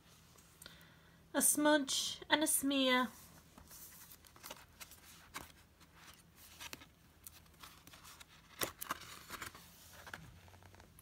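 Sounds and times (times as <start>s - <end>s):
paper page rustling: 3.3s - 11.0s.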